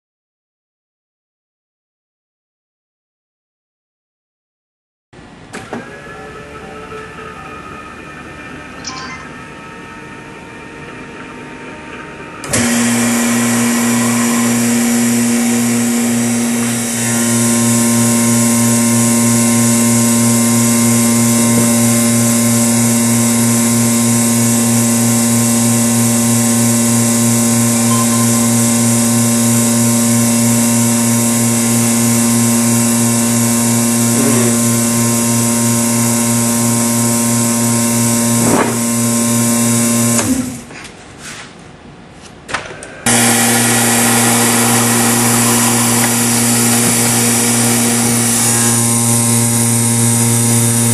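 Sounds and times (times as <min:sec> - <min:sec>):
vacuum motor humming: 0:10.2 - 0:40.7, 0:42.9 - 0:50.9.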